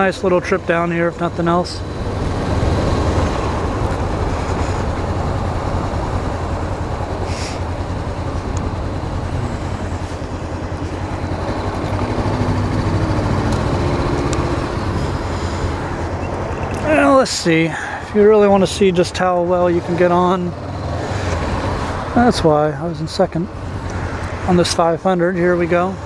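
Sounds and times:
motorcycle engine running: 0.0 - 19.5.

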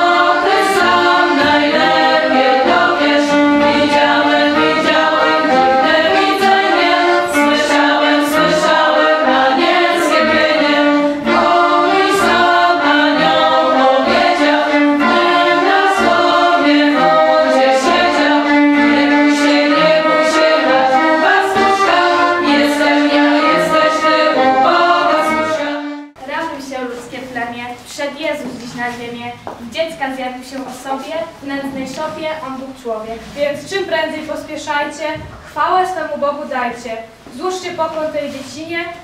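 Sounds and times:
choir singing unaccompanied: 0.0 - 26.2.

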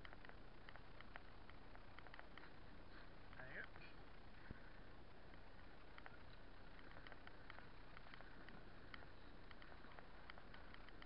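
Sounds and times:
bicycle riding hiss and ticks: 0.0 - 11.0.

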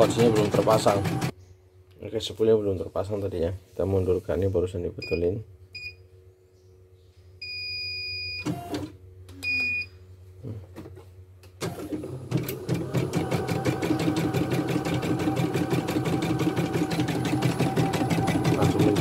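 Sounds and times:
motor hum: 0.0 - 1.4, 11.5 - 19.0.

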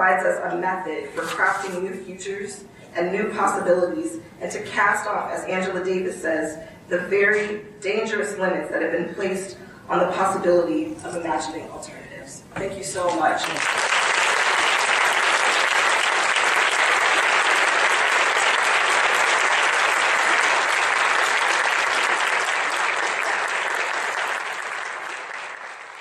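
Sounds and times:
large audience applauding: 13.4 - 26.0.

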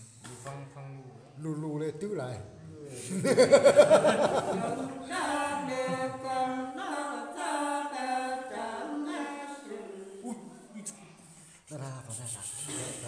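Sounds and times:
person singing unaccompanied: 5.0 - 10.3.

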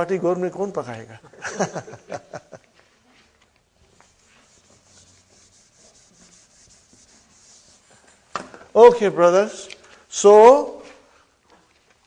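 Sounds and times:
faint scratching and rubbing: 3.0 - 8.3.

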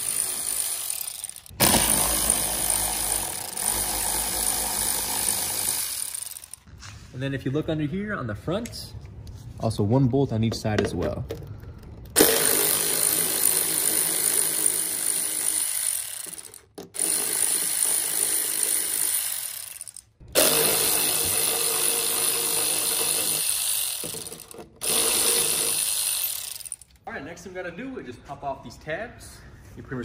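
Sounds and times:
electric ratchet running: 0.0 - 6.7, 12.2 - 27.0.

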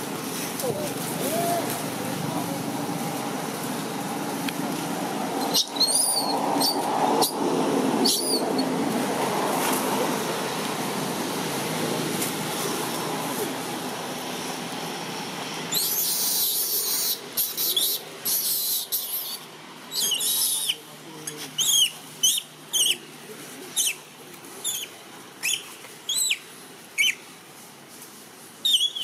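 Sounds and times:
baby monkey screaming: 8.0 - 8.6, 15.7 - 20.8, 21.6 - 23.0, 24.6 - 26.4, 27.0 - 27.2.

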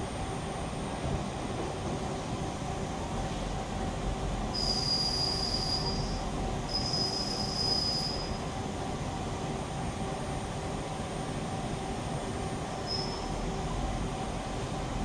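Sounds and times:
high squeals from lathe shaft: 4.6 - 8.4, 12.8 - 13.4.

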